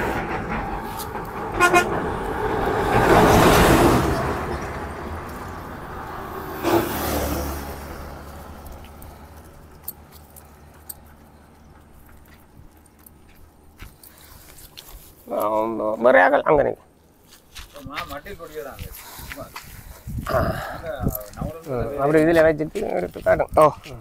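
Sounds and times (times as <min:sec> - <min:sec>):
vehicle passing: 0:00.0 - 0:13.3
vehicle horn toot: 0:01.5 - 0:02.0.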